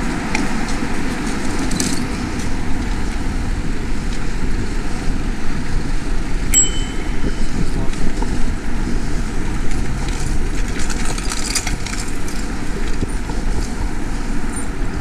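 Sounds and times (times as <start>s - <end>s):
passing traffic: 0.0s - 15.0s
wind and road noise: 0.0s - 15.0s
brief high ring: 6.6s - 8.0s.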